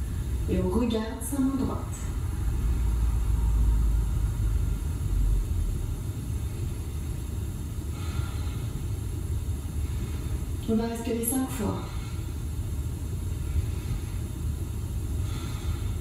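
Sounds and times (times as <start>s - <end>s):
low rumble: 0.0s - 10.7s.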